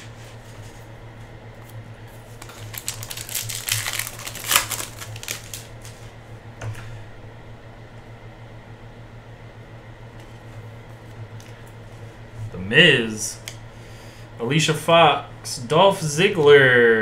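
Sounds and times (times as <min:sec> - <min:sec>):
low steady hum: 0:00.0 - 0:17.0
foil wrapper crinkling and tearing: 0:02.3 - 0:06.0.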